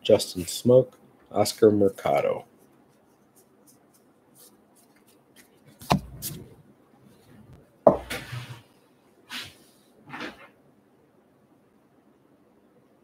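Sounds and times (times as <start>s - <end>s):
short hissing sounds: 9.3s - 9.9s.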